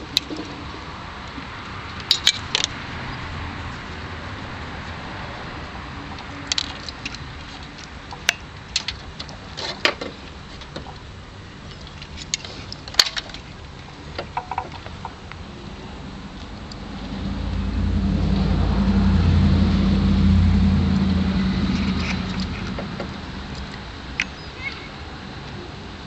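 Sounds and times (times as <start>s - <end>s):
clicks and rattles of wiring: 6.5s - 11.0s, 11.7s - 13.5s
steady background rumble: 10.2s - 25.8s.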